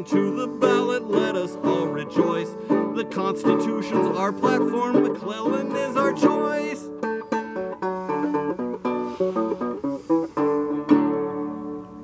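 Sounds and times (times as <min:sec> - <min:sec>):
banjo picked melody: 0:00.0 - 0:12.0
strummed banjo chord: 0:04.0 - 0:12.0.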